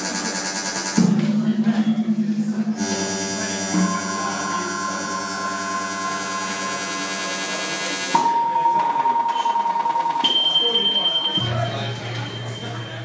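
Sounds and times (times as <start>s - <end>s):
synthetic drone tones: 0.0s - 9.9s
high synth tone: 1.7s - 13.0s.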